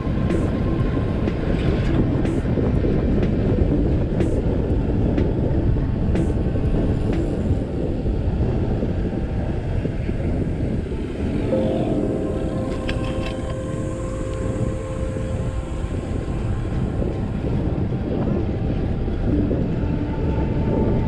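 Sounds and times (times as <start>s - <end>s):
wind rushing on microphone: 0.0s - 21.0s.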